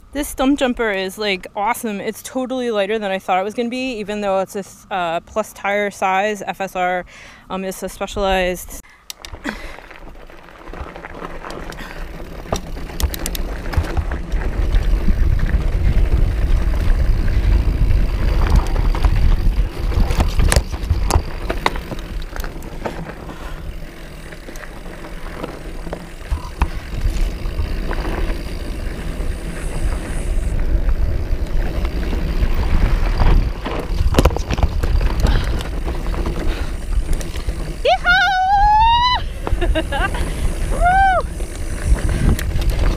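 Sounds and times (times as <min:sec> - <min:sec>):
bike clicking and clattering: 0:07.8 - 0:42.9
tyres crunching over stones: 0:09.3 - 0:38.0
wind buffeting microphone: 0:11.7 - 0:24.5, 0:25.7 - 0:42.9.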